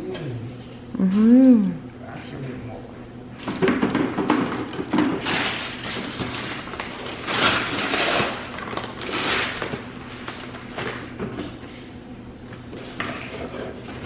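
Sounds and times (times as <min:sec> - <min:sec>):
wrapping paper tearing and crumpling: 0:05.2 - 0:10.9.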